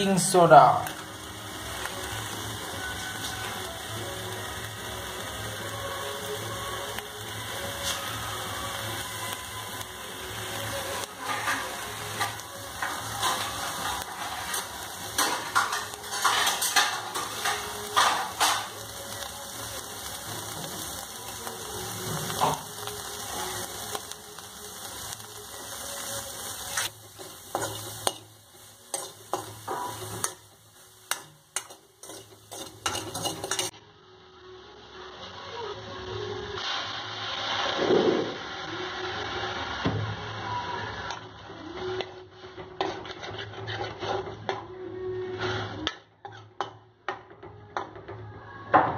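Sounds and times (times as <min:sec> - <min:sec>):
food sizzling with crackles: 0:00.0 - 0:48.9
steel spoon scraping pan: 0:11.2 - 0:18.8, 0:26.6 - 0:33.7, 0:42.6 - 0:46.7.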